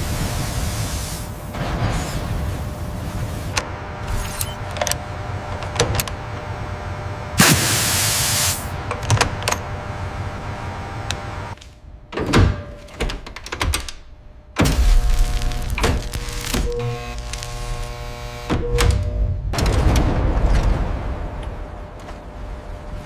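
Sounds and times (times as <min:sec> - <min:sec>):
loud air hiss: 0:00.0 - 0:03.6, 0:07.4 - 0:08.8.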